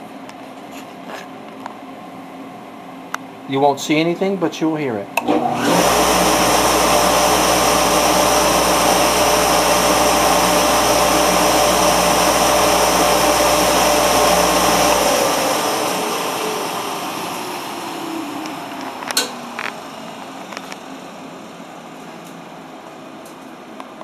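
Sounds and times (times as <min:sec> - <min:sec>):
dust collector rushing and humming: 0:05.4 - 0:21.6.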